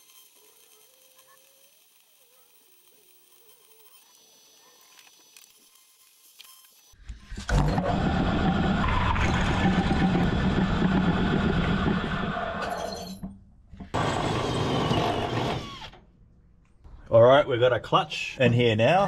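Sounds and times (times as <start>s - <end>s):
cordless drill motor whine: 13.9s - 16.0s.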